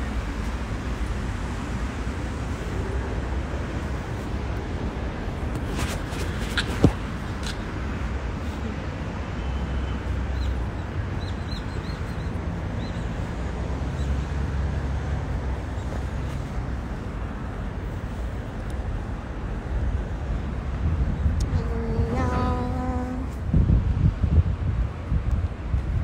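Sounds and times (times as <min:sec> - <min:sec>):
traffic: 0:00.0 - 0:26.0
wind on microphone: 0:20.3 - 0:26.0.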